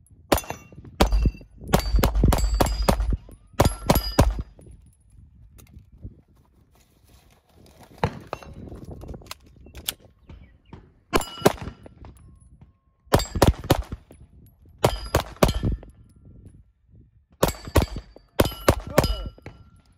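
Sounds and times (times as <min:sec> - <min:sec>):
gunshots: 0:00.3 - 0:04.5, 0:11.1 - 0:11.9, 0:13.1 - 0:14.0, 0:17.4 - 0:19.6.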